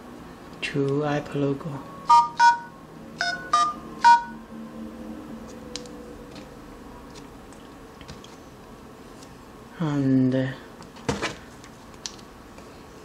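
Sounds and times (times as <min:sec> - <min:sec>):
two-tone keypad beeps: 0:02.1 - 0:04.4.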